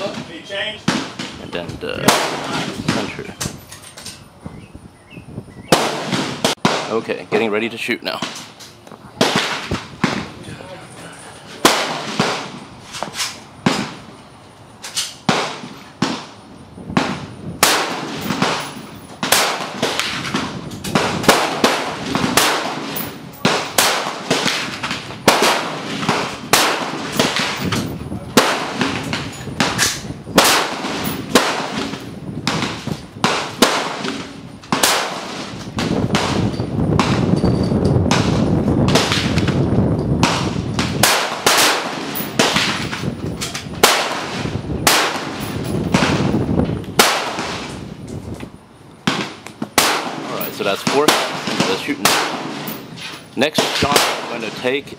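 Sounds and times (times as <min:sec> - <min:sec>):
rifle shots: 0:00.8 - 0:01.4, 0:02.0 - 0:03.3, 0:05.7 - 0:07.5, 0:09.2 - 0:10.3, 0:11.6 - 0:12.6, 0:13.6 - 0:14.1, 0:15.2 - 0:16.4, 0:17.0 - 0:37.3, 0:38.1 - 0:43.1, 0:43.7 - 0:46.4, 0:47.0 - 0:47.8, 0:49.0 - 0:54.9.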